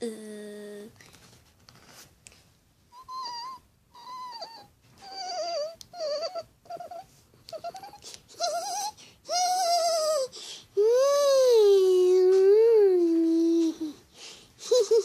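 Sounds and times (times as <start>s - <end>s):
child whimpering: 2.9s - 14.0s.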